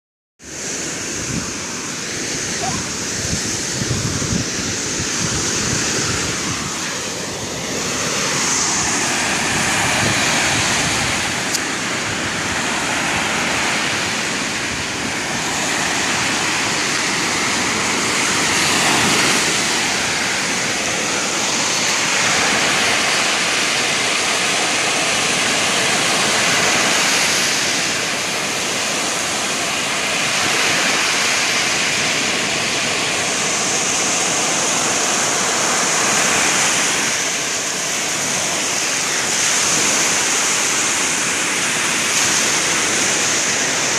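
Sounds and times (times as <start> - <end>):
ocean surf breaking on shore: 0.4 - 43.9.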